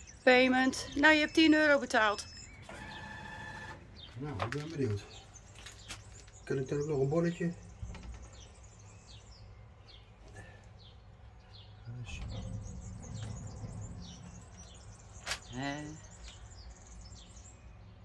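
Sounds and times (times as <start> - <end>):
small birds chirping: 0.0 - 18.0
low steady rumble: 11.9 - 15.2.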